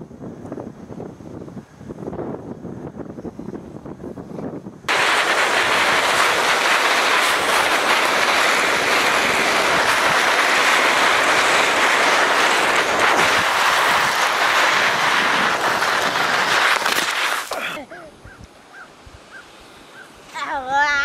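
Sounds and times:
sliding on icy snow: 4.9 - 17.8.

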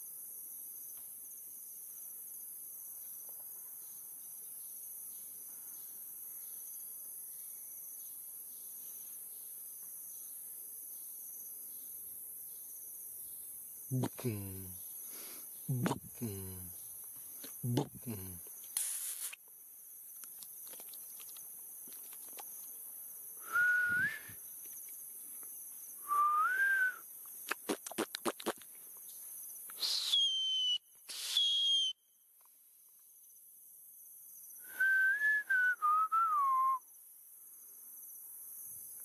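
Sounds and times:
insects buzzing: 0.0 - 39.0
person whistling: 23.4 - 24.4, 26.0 - 27.0, 29.8 - 32.0, 34.7 - 36.8.

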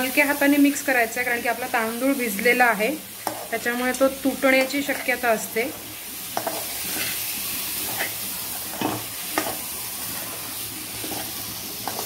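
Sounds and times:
rice frying sizzling: 0.0 - 12.0
spatula scraping pot: 6.3 - 12.0.

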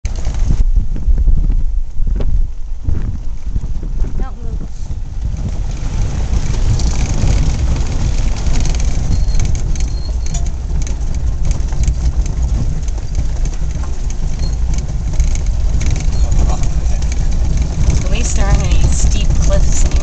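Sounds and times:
car engine and tyres rumbling: 0.0 - 20.0
gravel clicks and rattles: 0.0 - 20.0.

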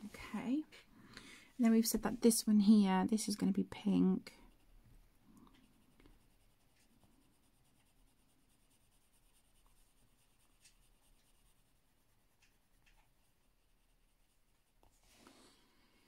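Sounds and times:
pencil scratching on paper: 3.2 - 15.1.

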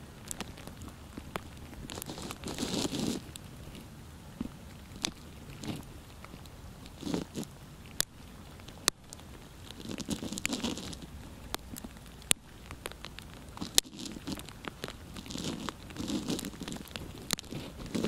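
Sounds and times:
close rustling and crinkling: 0.0 - 18.0.

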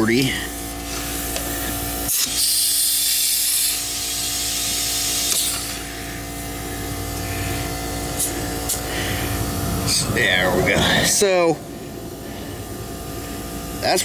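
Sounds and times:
air hissing from tire valve: 0.5 - 9.9.

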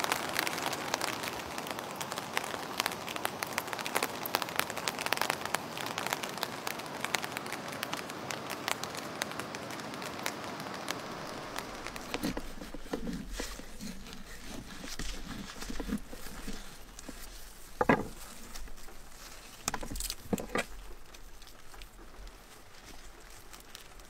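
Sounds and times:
rain pattering: 0.0 - 24.0
light knocks and clicks: 11.8 - 21.9.

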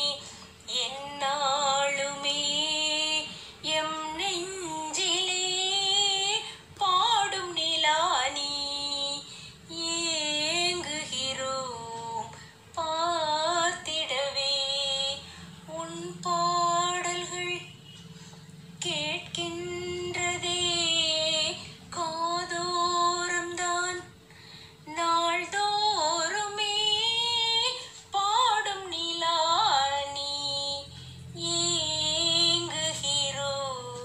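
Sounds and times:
woman singing with vibrato: 0.0 - 18.0, 18.8 - 34.0.

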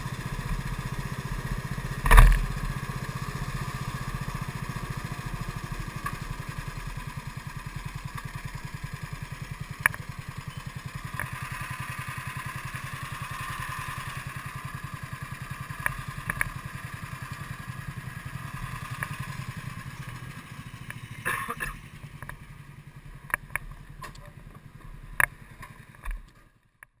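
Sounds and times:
kart engine idling: 0.0 - 26.7.

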